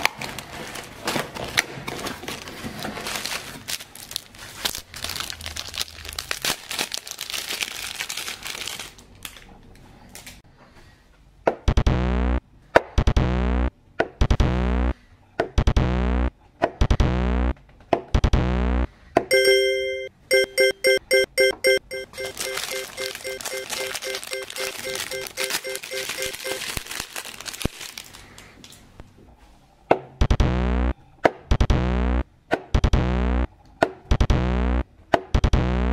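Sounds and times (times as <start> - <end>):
plastic packaging crinkling: 0.0 - 10.4, 22.1 - 28.9
loud synthesizer music: 11.8 - 12.4, 13.0 - 13.7, 14.3 - 14.9, 15.6 - 16.3, 16.9 - 17.5, 18.2 - 18.9, 30.2 - 32.2, 32.8 - 33.5, 34.1 - 34.8.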